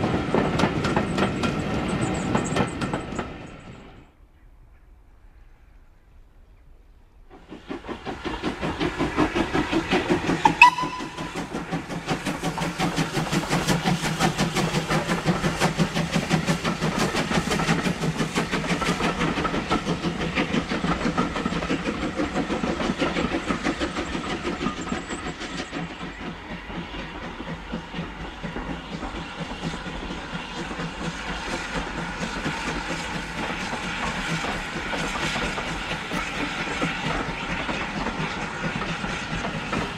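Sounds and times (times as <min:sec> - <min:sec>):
steam locomotive passing: 0:00.0 - 0:39.9
steam whistle: 0:10.4 - 0:11.7.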